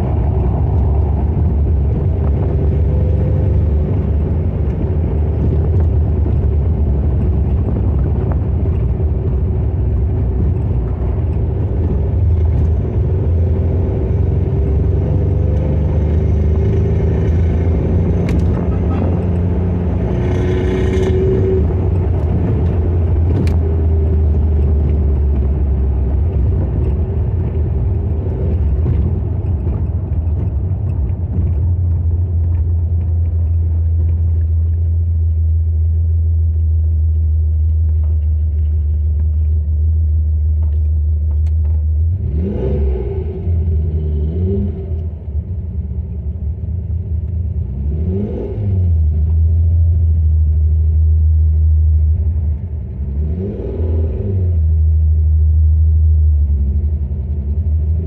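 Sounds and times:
car engine rumble from inside: 0:00.0 - 0:58.0.

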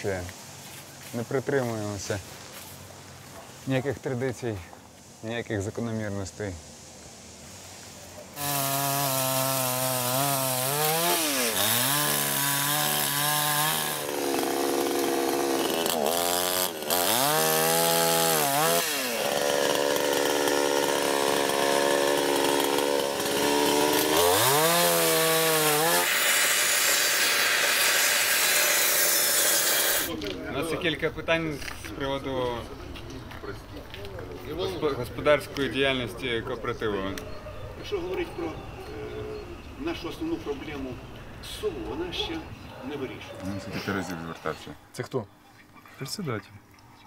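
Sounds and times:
chainsaw revving: 0:08.4 - 0:30.1
power saw cutting wood: 0:08.4 - 0:30.1.

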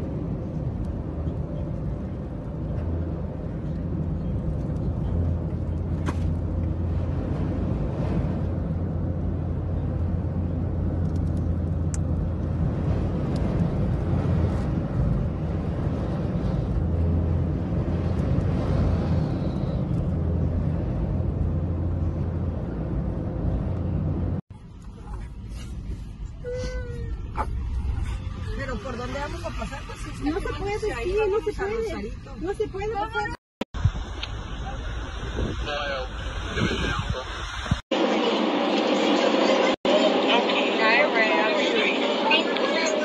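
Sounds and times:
car driving at highway speed: 0:00.0 - 0:25.9.

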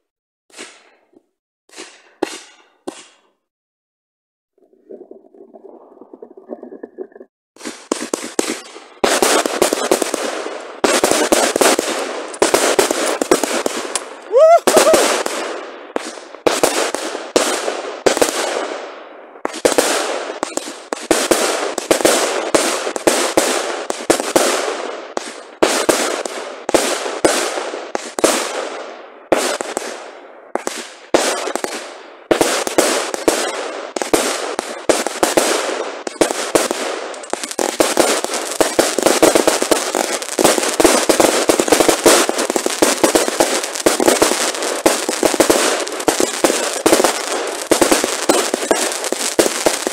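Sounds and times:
firework shots: 0:00.5 - 0:01.1, 0:01.7 - 0:03.3, 0:07.6 - 0:49.9
rising firework whistle: 0:14.3 - 0:15.2.

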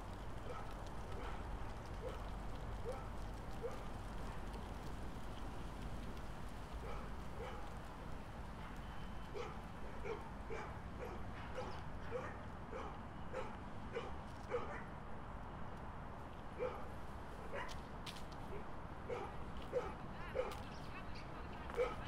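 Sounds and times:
dog barking: 0:00.4 - 0:01.4, 0:02.8 - 0:03.8, 0:06.8 - 0:07.7, 0:09.4 - 0:14.9, 0:16.6 - 0:16.9, 0:17.5 - 0:17.7, 0:19.1 - 0:20.6, 0:21.7 - 0:22.0.

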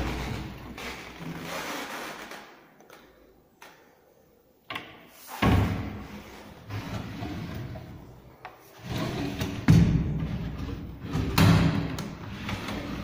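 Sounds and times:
drawers sliding on runners: 0:05.2 - 0:13.0.

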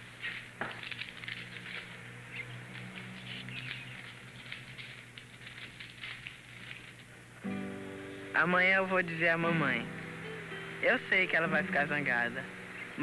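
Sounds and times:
paper crackling rustles: 0:00.0 - 0:07.4
low steady hum: 0:00.0 - 0:13.0.

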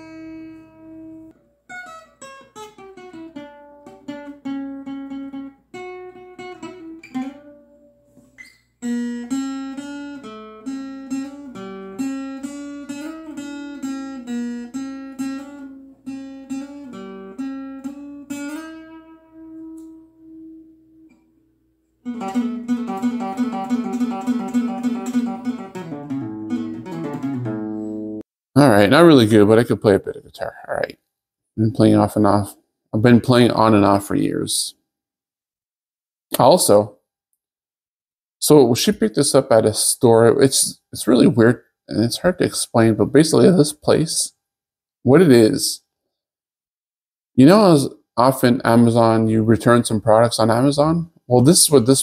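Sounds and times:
fingerstyle acoustic guitar: 0:00.0 - 0:21.2, 0:22.0 - 0:28.2.

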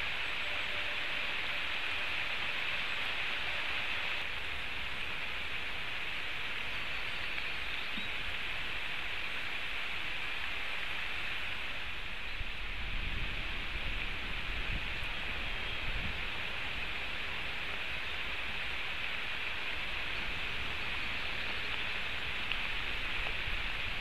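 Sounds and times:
heavy rain falling: 0:00.0 - 0:24.0.

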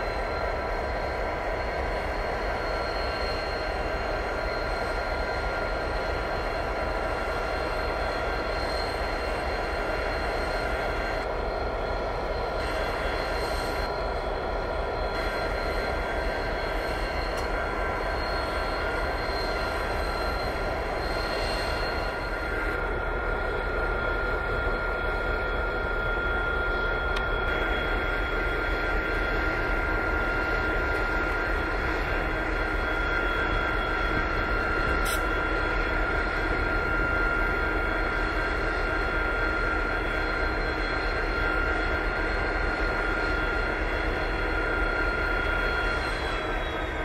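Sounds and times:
locomotive engine idling with whine: 0:00.0 - 0:47.0
brief click: 0:35.0 - 0:35.2.

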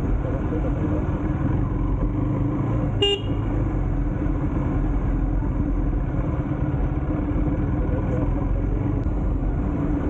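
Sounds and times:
motorcycle rumbling: 0:00.0 - 0:10.0
vehicle horn toot: 0:03.0 - 0:03.5.

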